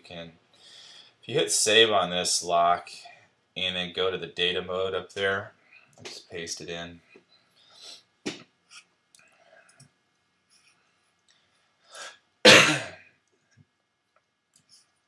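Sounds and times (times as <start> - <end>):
person coughing: 12.5 - 13.0.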